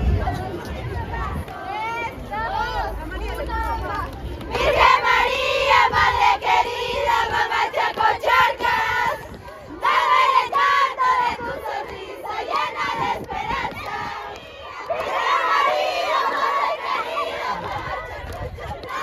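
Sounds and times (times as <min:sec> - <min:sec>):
children chanting: 0:04.5 - 0:19.0.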